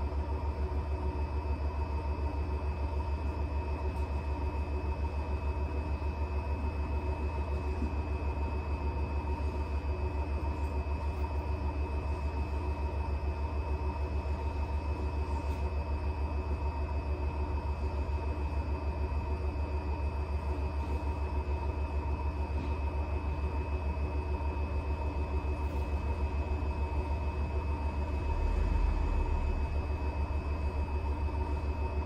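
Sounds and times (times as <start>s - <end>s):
washing machine spin rumble: 0.0s - 32.0s
motor whine: 27.1s - 32.0s.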